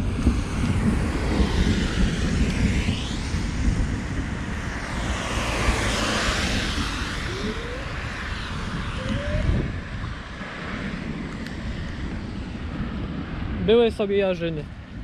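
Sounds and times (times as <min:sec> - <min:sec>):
wind rumbling on microphone: 0:00.0 - 0:15.0
vehicles passing on wet road: 0:04.2 - 0:13.6.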